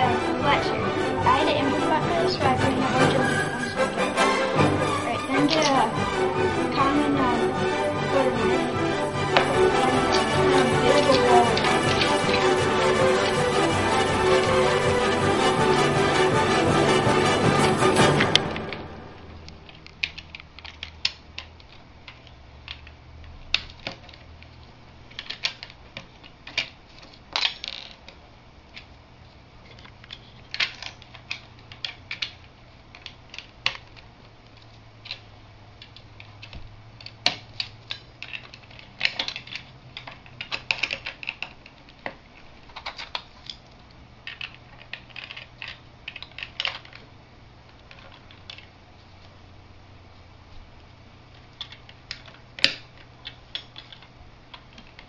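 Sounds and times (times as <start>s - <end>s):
plastic bricks clicking and clattering: 5.4s - 5.9s, 9.2s - 15.0s, 19.5s - 28.9s, 29.6s - 48.8s, 51.3s - 55.0s.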